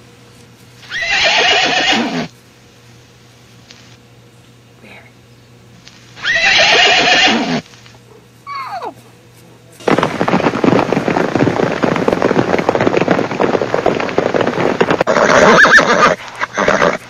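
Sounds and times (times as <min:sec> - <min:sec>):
horse squeal: 0:00.9 - 0:02.3, 0:06.2 - 0:07.6, 0:08.5 - 0:08.9, 0:15.1 - 0:17.0
horse hoofbeats and scuffling: 0:06.9 - 0:17.0.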